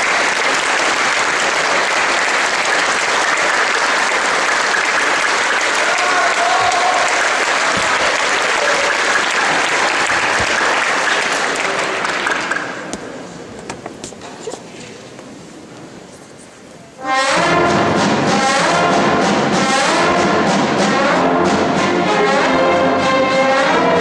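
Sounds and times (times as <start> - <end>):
audience applauding: 0.0 - 12.9.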